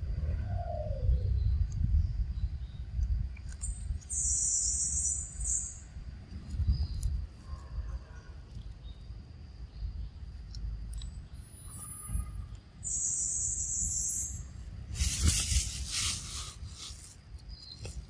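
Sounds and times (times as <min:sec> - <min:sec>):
wind rumble on microphone: 0:00.0 - 0:04.4, 0:05.0 - 0:12.8, 0:13.6 - 0:18.0
loud hiss: 0:14.9 - 0:17.2.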